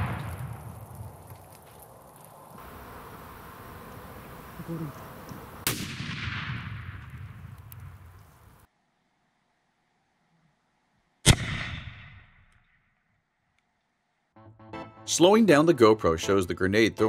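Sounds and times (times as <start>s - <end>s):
grenade explosion: 0.0s - 1.2s, 5.6s - 8.1s.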